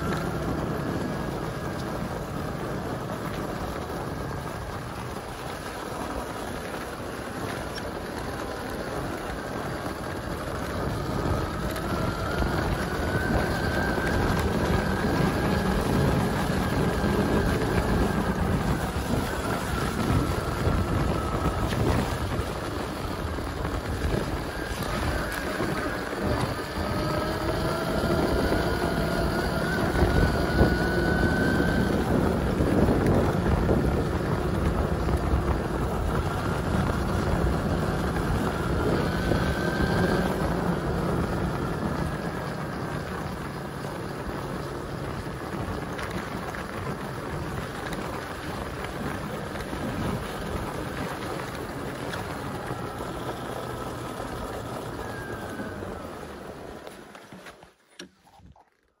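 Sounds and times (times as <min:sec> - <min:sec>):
faint rising whine: 0:00.0 - 0:47.1
tyres rolling on wet dirt: 0:00.0 - 0:59.0
wind noise on microphone: 0:00.0 - 0:59.0.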